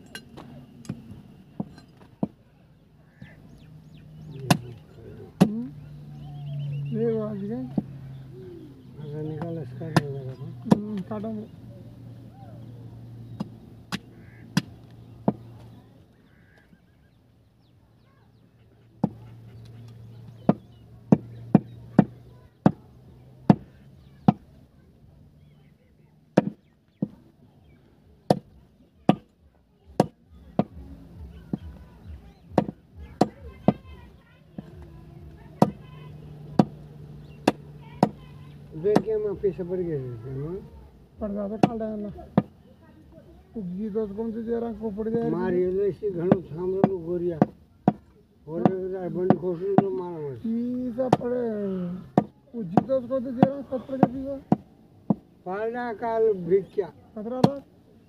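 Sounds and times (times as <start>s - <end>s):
cleaver chopping meat and bone: 4.2s - 5.7s, 9.4s - 11.2s, 13.3s - 15.5s, 19.0s - 19.7s, 20.4s - 22.9s, 23.5s - 24.5s, 26.4s - 27.2s, 28.3s - 29.3s, 29.9s - 30.8s, 32.5s - 33.8s, 35.6s - 39.2s, 41.6s - 42.6s, 46.2s - 50.1s, 50.7s - 55.3s, 57.4s - 57.7s
cleaver chopping on wooden block: 19.0s - 19.2s, 20.4s - 22.8s, 23.5s - 24.5s, 26.4s - 27.2s, 28.3s - 29.3s, 29.9s - 30.8s, 32.5s - 33.8s, 36.6s - 38.2s, 52.1s - 55.2s, 57.4s - 57.6s.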